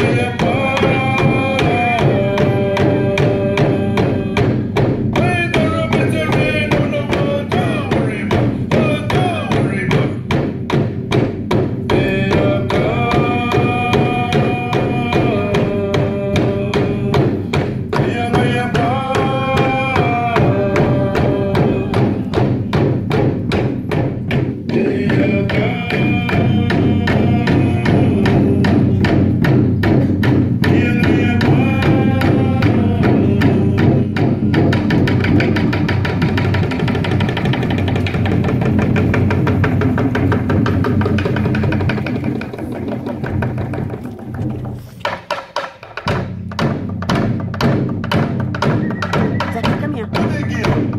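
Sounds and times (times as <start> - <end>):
group singing long notes: 0.0 - 4.7, 11.9 - 22.9, 24.6 - 29.3, 30.6 - 35.2
fast drum beat: 0.0 - 50.9.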